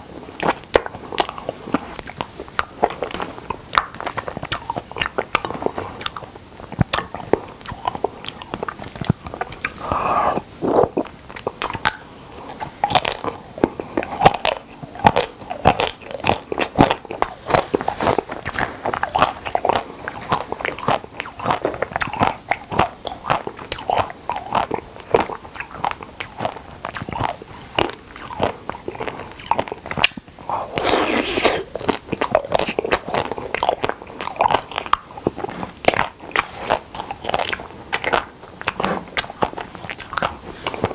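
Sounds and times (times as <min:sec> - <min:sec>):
wet chewing: 0:00.0 - 0:40.9
crunching ice cream coating: 0:00.2 - 0:40.9
breathy noise: 0:09.6 - 0:11.1, 0:30.4 - 0:31.8.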